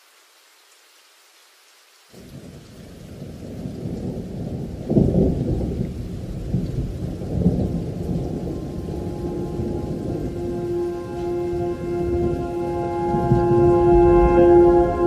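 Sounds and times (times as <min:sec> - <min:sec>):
thunder rolling: 0:03.2 - 0:15.0
background music: 0:08.5 - 0:15.0.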